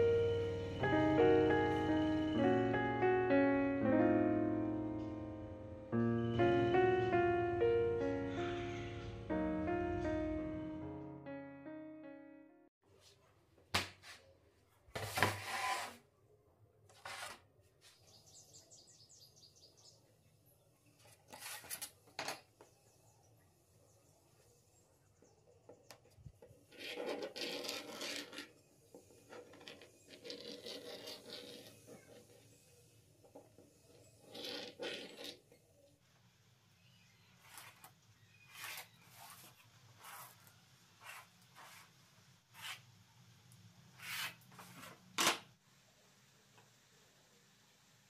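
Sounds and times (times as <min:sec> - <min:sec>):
tool scraping on plywood: 0:15.0 - 0:16.0, 0:16.9 - 0:17.4, 0:26.7 - 0:32.6, 0:41.0 - 0:42.8, 0:44.0 - 0:45.0
point scratching across plywood: 0:26.7 - 0:28.6.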